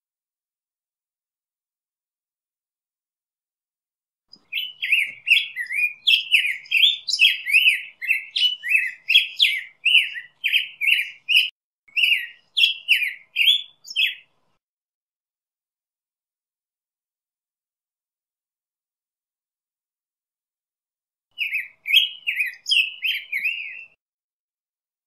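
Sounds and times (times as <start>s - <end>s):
bird singing warbled notes: 4.4s - 14.3s, 21.4s - 24.0s.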